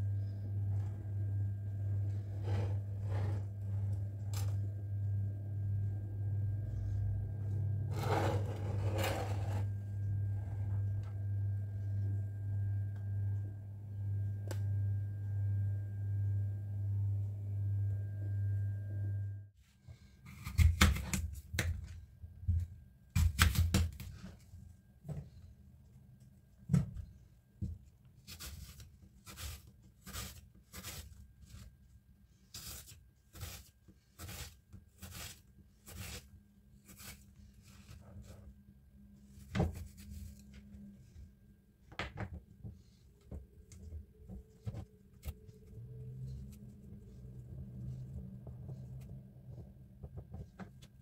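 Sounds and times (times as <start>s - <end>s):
low pulsing hum: 0.0s - 19.5s, 36.0s - 51.0s.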